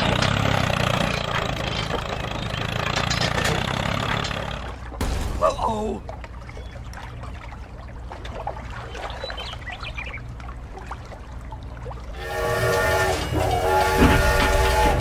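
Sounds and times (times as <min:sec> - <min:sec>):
toy train rumbling on track: 0:00.0 - 0:04.7, 0:12.2 - 0:15.0
toy train horn blasts: 0:12.2 - 0:15.0.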